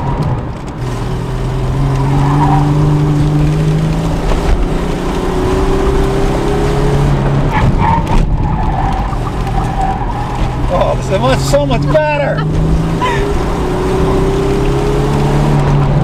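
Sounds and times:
car engine accelerating hard: 0.0s - 16.0s
tire squeal: 2.0s - 3.2s, 7.5s - 12.2s.

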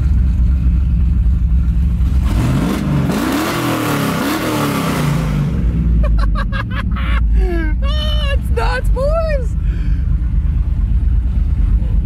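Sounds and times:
truck engine revving hard: 2.0s - 6.3s.

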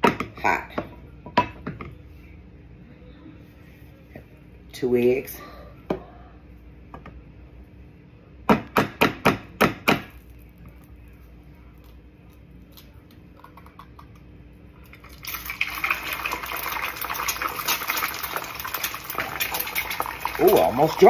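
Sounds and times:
egg sizzling in hot oil: 14.9s - 21.0s.

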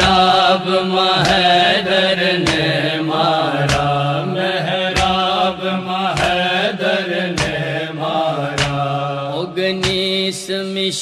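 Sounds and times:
sharp drum beat: 0.0s - 0.5s, 3.6s - 4.0s, 5.0s - 5.3s, 7.3s - 7.7s, 8.6s - 8.9s, 9.8s - 10.1s.

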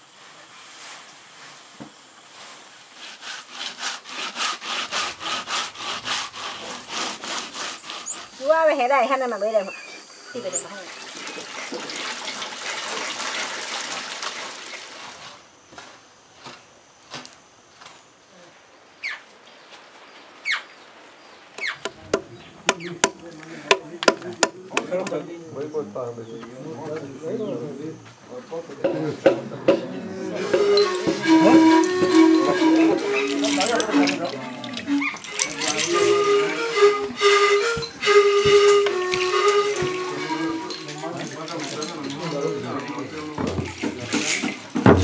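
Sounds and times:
hand grating rasping strokes: 2.8s - 9.4s, 30.3s - 42.6s
falling bird calls: 19.0s - 23.0s
wooden stick pounding in trough: 21.8s - 25.2s, 43.4s - 45.0s.

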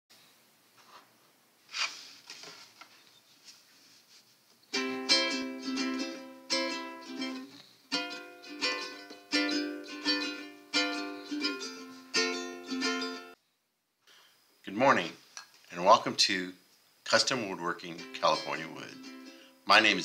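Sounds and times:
strummed string instrument chords: 4.8s - 13.4s, 17.9s - 20.0s.

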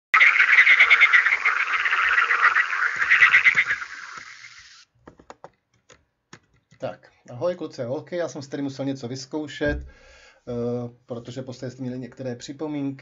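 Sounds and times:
frog croaking: 0.2s - 4.8s.

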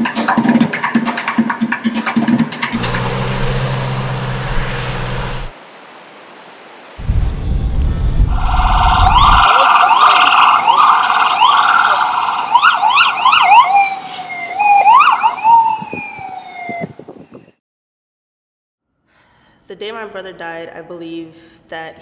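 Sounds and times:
low rumble: 7.0s - 9.6s
emergency vehicle siren: 8.3s - 17.0s.

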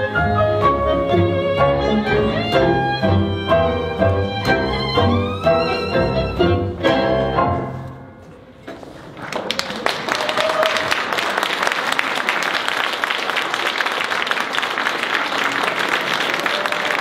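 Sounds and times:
audience applause: 9.0s - 17.0s.

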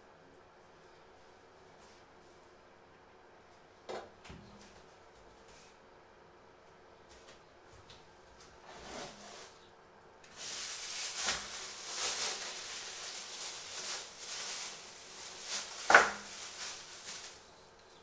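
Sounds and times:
plastic bag crinkling: 10.3s - 17.8s.

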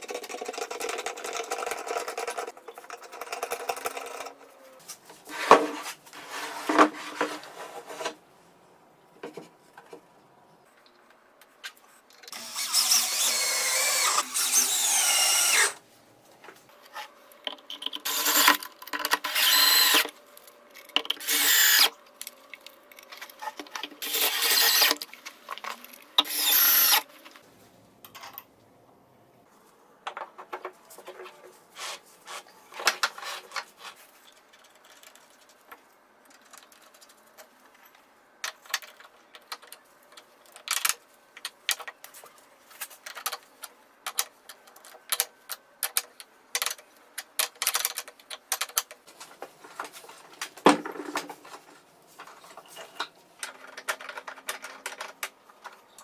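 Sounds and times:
cordless drill driving screws: 12.3s - 15.8s, 18.0s - 18.6s, 19.2s - 20.1s, 21.2s - 21.9s, 24.0s - 25.0s, 26.2s - 27.0s.

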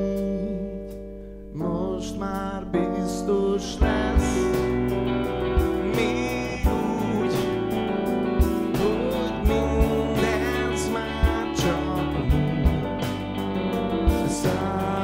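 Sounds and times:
person singing: 0.0s - 15.0s
live band playing: 3.8s - 15.0s.

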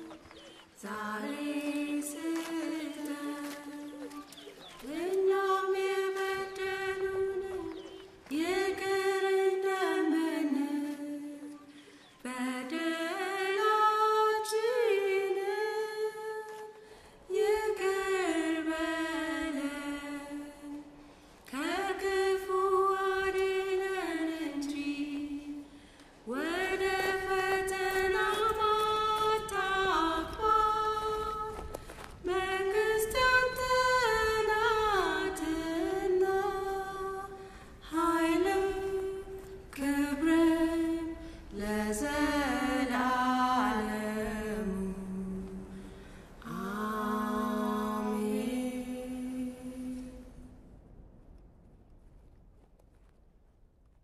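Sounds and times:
person singing chant-like song: 32.2s - 50.4s.

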